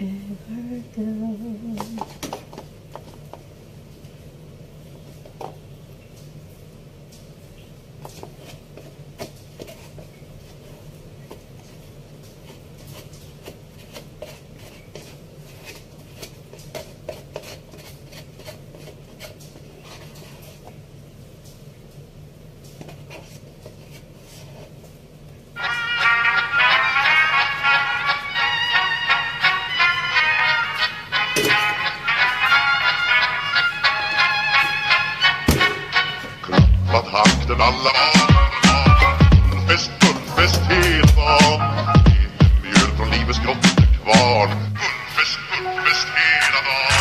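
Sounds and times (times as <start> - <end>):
low room hum: 0.0 - 47.0
music: 25.6 - 47.0.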